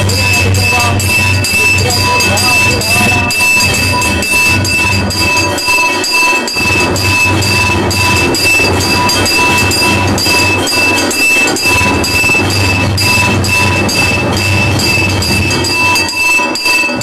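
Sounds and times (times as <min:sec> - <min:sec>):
temple bells ringing rapidly: 0:00.0 - 0:17.0.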